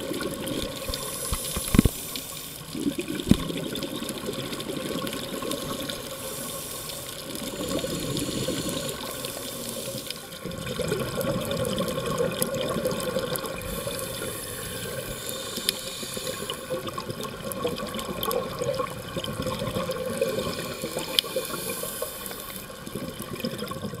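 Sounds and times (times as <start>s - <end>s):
exhaled bubbles: 0.0s - 24.0s
underwater water noise: 0.0s - 24.0s
scuba regulator breathing: 0.9s - 2.7s, 5.5s - 10.4s, 13.6s - 16.9s, 20.3s - 22.9s
high hiss: 5.7s - 10.3s, 13.6s - 16.8s, 20.5s - 22.8s.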